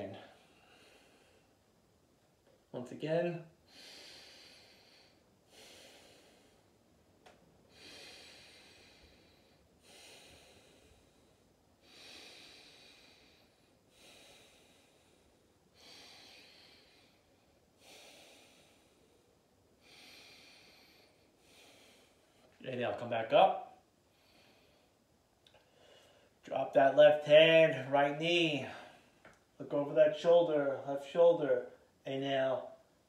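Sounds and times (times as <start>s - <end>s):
person breathing slowly: 0.1s - 1.6s, 3.6s - 6.8s, 7.6s - 22.6s, 24.0s - 26.4s, 28.6s - 29.3s.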